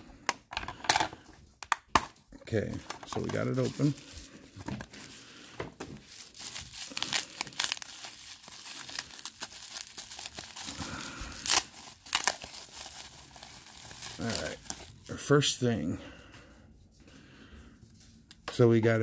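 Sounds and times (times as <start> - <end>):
bubble wrap crinkling: 2.6 - 15.6
bubble wrap sharp cracks: 5.9 - 15.1.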